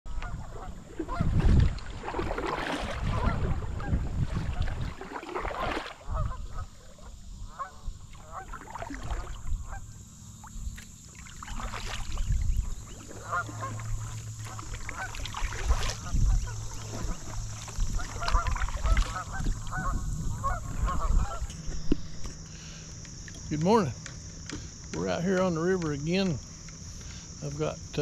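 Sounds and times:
honking waterfowl calls: 0.1 - 1.4, 3.0 - 10.0, 11.5 - 21.9
paddle splashing in water: 0.1 - 9.8, 10.4 - 22.3
steady low rumble: 11.7 - 24.4.

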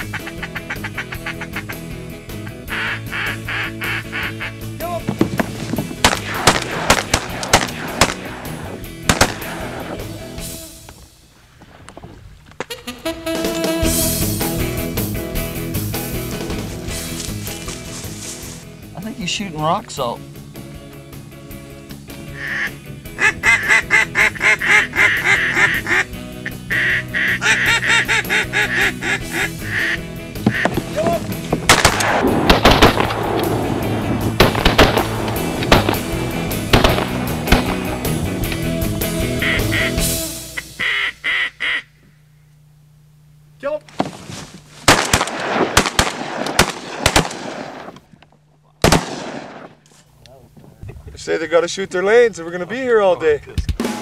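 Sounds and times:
mallard quacking: 0.0 - 4.8, 22.3 - 30.9, 39.3 - 40.0, 40.6 - 41.9
shotgun shots with echo: 5.2 - 10.0, 31.7 - 33.8, 34.4 - 37.9, 44.9 - 48.0, 48.8 - 49.8.

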